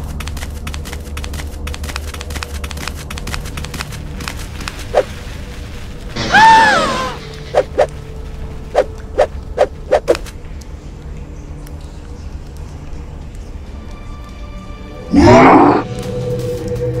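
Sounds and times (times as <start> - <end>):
cartoon footsteps: 0.0 - 5.1, 8.7 - 10.3.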